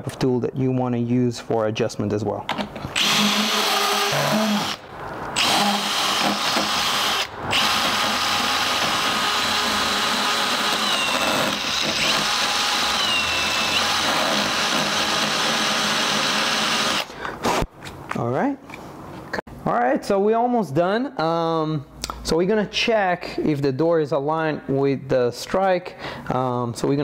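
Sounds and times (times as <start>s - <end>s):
drill burr grinding steel: 3.0s - 17.1s.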